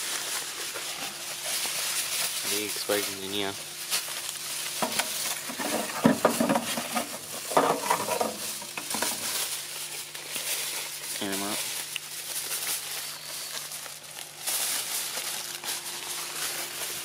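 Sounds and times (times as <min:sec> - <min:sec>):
low hum and hiss: 0:00.0 - 0:17.0
objects knocking and rustling: 0:03.9 - 0:10.1.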